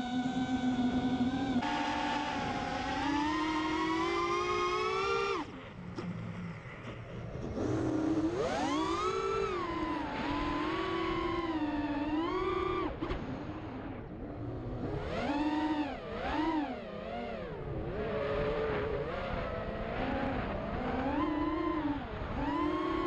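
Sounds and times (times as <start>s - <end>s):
quadcopter motors whining: 0.0s - 6.4s, 7.5s - 13.6s.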